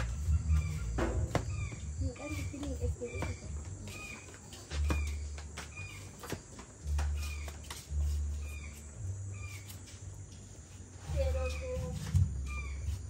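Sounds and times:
dull low thumps: 0.0s - 3.9s, 11.1s - 12.8s
birds chirping: 0.0s - 13.0s.

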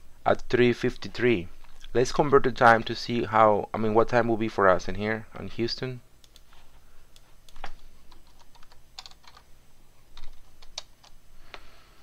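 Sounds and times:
computer keyboard typing: 6.2s - 9.5s, 10.2s - 11.2s.

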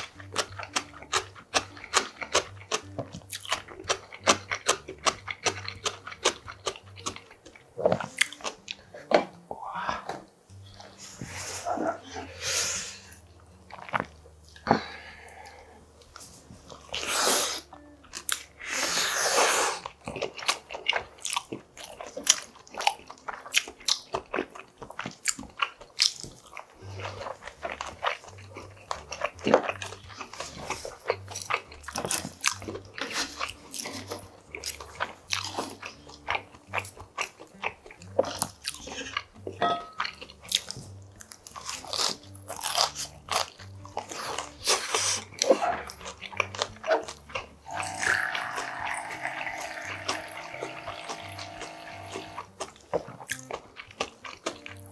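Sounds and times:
wet chewing with mouth clicks: 0.0s - 9.4s, 13.0s - 54.9s
person slurping noodles: 16.9s - 17.7s, 18.6s - 19.9s, 47.6s - 52.5s.

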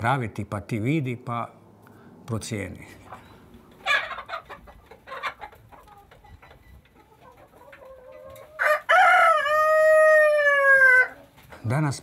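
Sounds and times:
hens clucking: 2.8s - 12.0s
rooster crowing: 8.6s - 11.2s.

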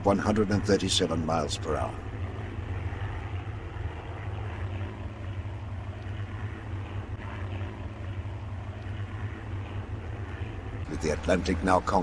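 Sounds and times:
propeller aircraft engines droning: 0.0s - 12.0s.

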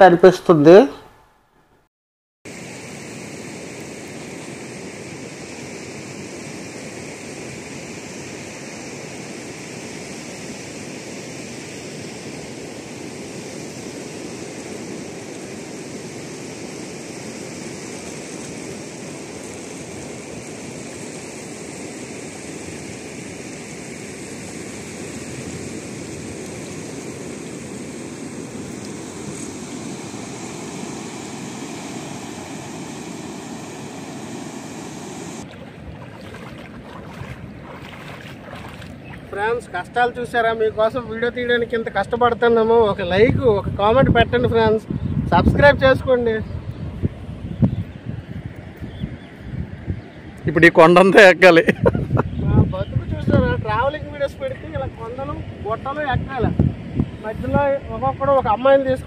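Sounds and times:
surf washing onto beach: 2.5s - 40.2s.

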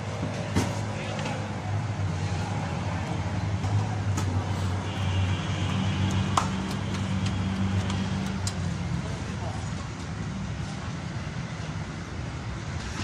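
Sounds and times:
steady low hum: 0.0s - 10.5s
sharp clicks: 6.0s - 8.6s.

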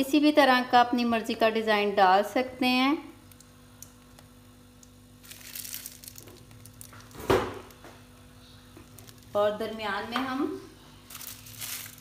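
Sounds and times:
faint steady hum: 0.0s - 12.0s
plastic piping bag crinkling: 3.2s - 10.0s, 10.9s - 12.0s.

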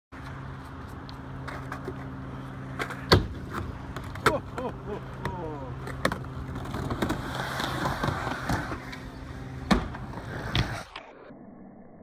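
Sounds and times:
skateboard wheels rolling on wood: 0.2s - 11.0s.

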